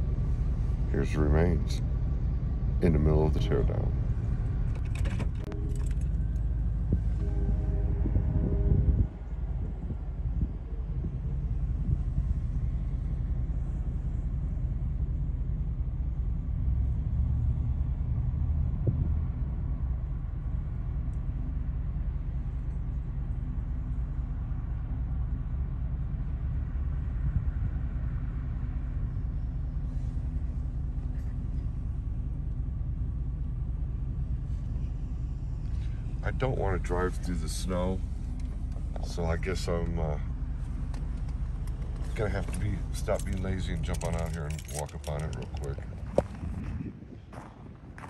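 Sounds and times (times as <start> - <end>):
faint steady hum: 0.0 - 48.0
vehicle engine idling: 0.0 - 48.0.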